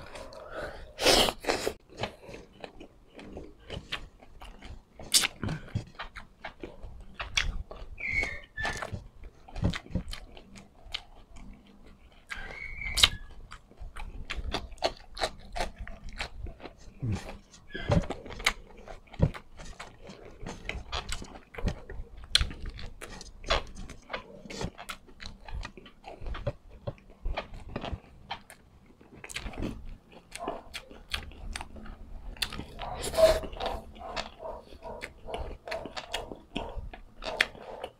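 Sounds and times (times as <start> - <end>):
man chewing: 0.0 - 37.9.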